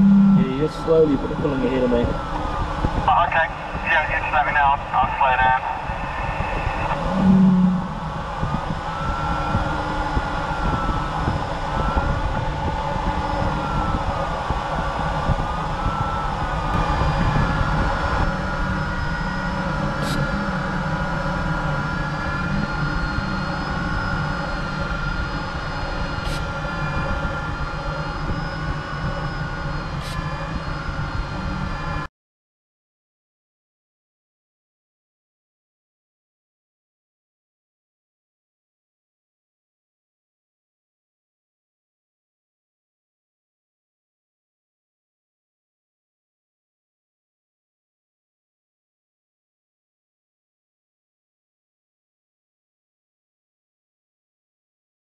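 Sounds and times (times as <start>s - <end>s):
wavering electronic variometer tone: 0.0s - 32.1s
airflow rush in cockpit: 0.4s - 32.0s.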